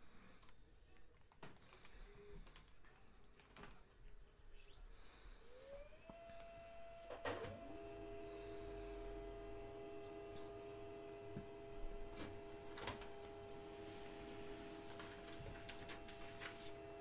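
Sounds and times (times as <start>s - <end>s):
faint electrical hum: 0.0s - 17.0s.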